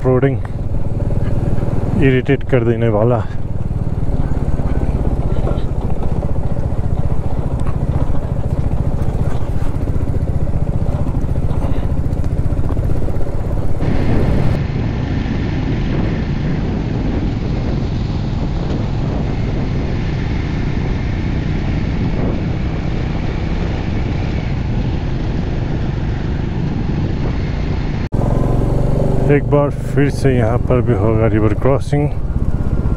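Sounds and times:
motorcycle engine on gravel: 0.0 - 14.6, 28.1 - 32.9
onboard motorcycle engine and road: 0.0 - 32.9.

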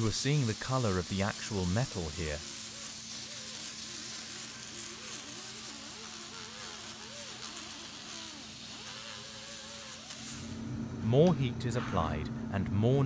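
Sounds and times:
rotary tool whining: 0.0 - 10.4
steady hiss and hum: 0.0 - 13.0.

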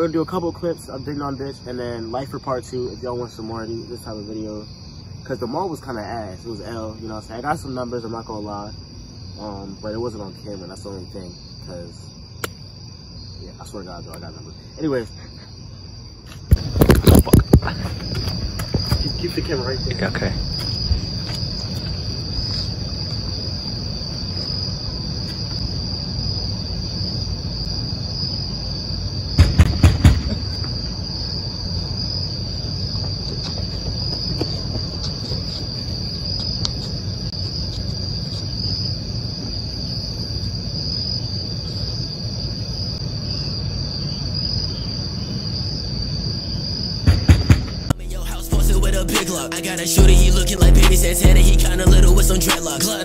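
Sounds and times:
crickets chirping: 0.0 - 53.0
loud thumps: 16.5 - 19.3, 29.4 - 31.2, 47.0 - 48.0.

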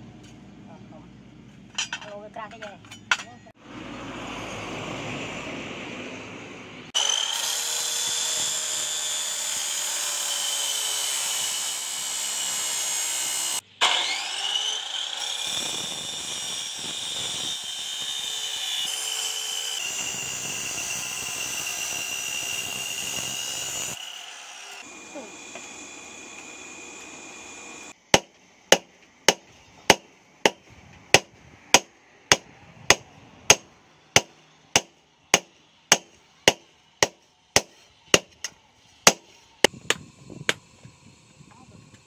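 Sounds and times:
power tool whining on steel: 6.9 - 28.0.

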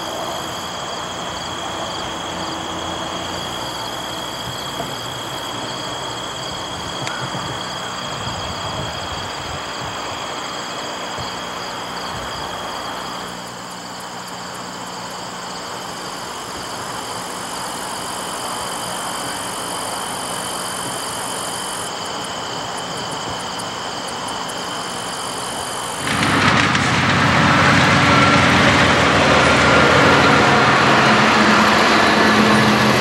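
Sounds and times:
diesel locomotives idling: 0.0 - 33.0
thin high whine: 0.0 - 33.0.

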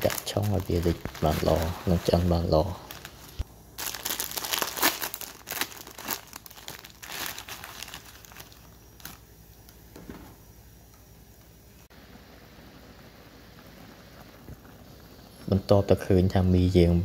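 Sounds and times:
plastic wrapper crinkling: 0.0 - 9.2.

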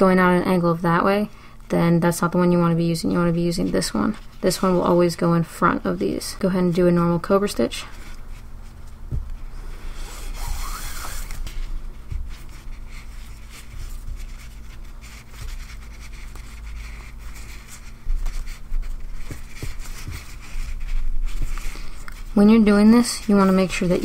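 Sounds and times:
steady low hum: 0.0 - 24.0
cord rubbing and sliding: 7.9 - 24.0.

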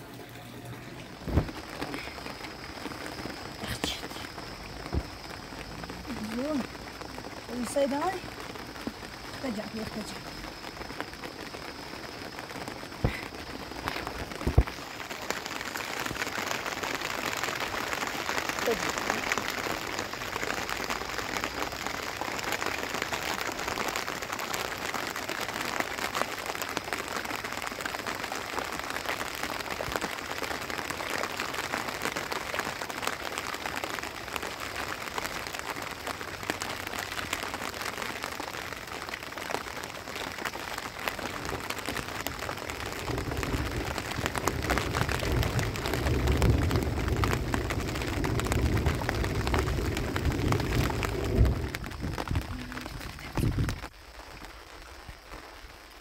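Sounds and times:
rain pattering on tent fabric: 0.0 - 56.0
deep low rumble: 42.7 - 53.8.

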